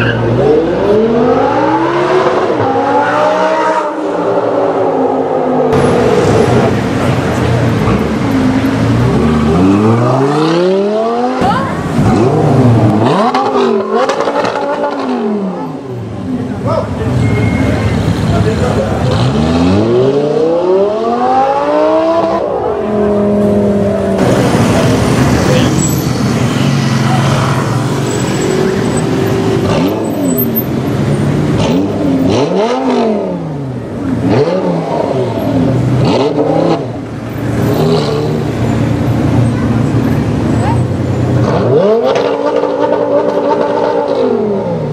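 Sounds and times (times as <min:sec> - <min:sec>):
sports car engine accelerating: 0:18.2 - 0:44.9.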